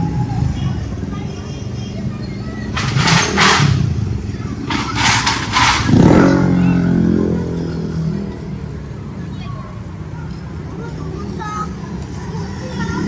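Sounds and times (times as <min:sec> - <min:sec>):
motorcycle traffic passing: 0:00.0 - 0:13.0
motorcycle engine passing loudly: 0:02.8 - 0:08.3.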